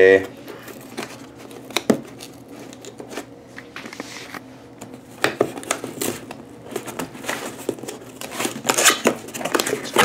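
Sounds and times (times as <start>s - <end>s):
cardboard box rustling: 5.3s - 10.0s.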